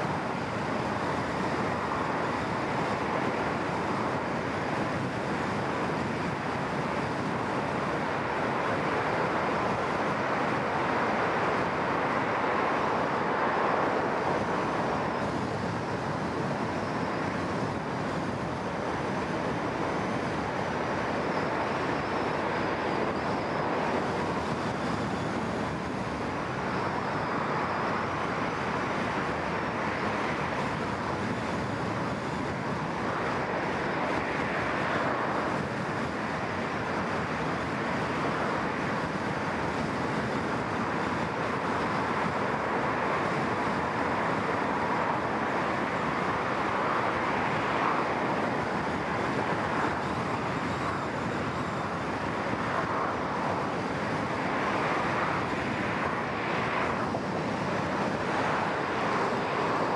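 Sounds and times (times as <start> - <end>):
wind noise: 0.0 - 59.9
other traffic: 45.3 - 59.9.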